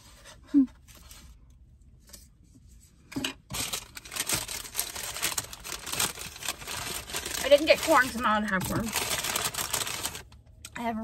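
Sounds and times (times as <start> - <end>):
food wrapping crinkling: 3.4 - 10.4.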